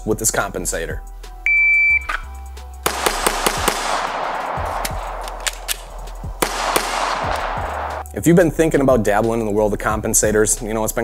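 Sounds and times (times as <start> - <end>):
shot timer beep: 1.5 - 2.3
pistol shots: 2.8 - 8.1.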